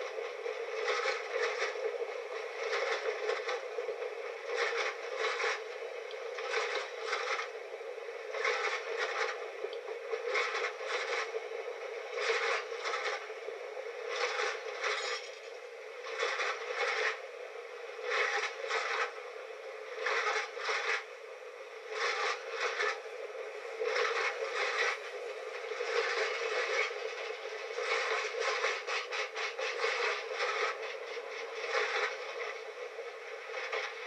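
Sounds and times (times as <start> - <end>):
steady train rumble: 0.0 - 34.0
train wheels clacking over rail joints: 4.4 - 5.6, 14.1 - 17.2.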